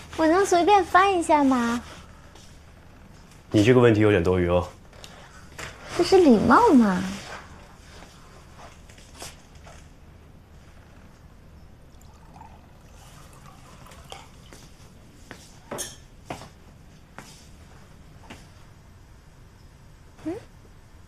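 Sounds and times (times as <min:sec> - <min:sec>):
water pouring into a mug: 0:11.9 - 0:15.1.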